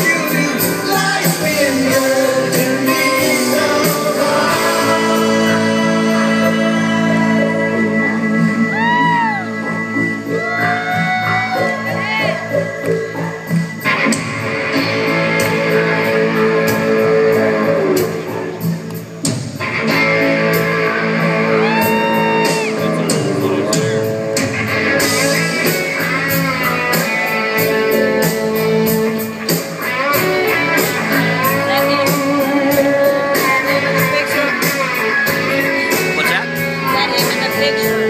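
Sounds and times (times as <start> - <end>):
steady drum beat: 0.0 - 6.9, 11.3 - 38.0
electric guitar lead with bent notes: 0.0 - 38.0.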